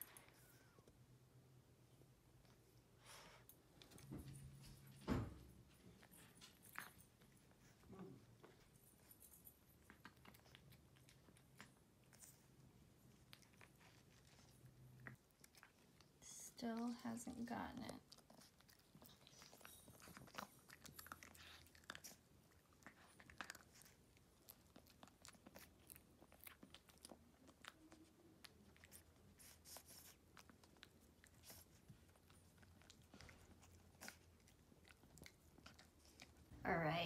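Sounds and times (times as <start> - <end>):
dog chewing a crunchy treat: 5.8 - 16.2, 17.3 - 36.5.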